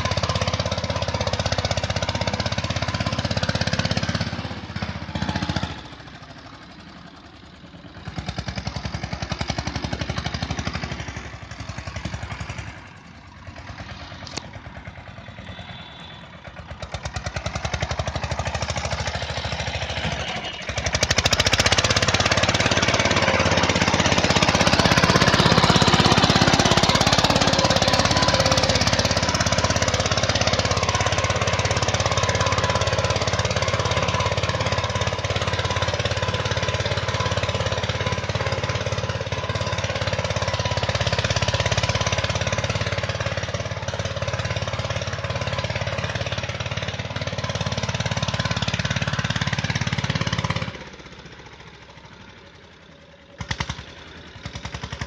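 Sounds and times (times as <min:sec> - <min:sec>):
tractor diesel engine chugging: 0:00.0 - 0:55.0.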